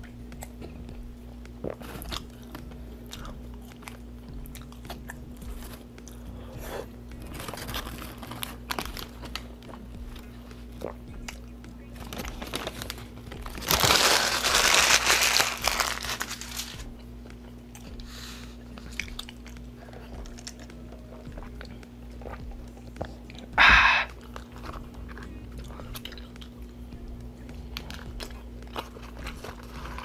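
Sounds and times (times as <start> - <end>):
chewing and crunching food: 0.0 - 30.0
paper wrapper crumpling: 7.2 - 9.4, 12.0 - 16.8, 28.7 - 30.0.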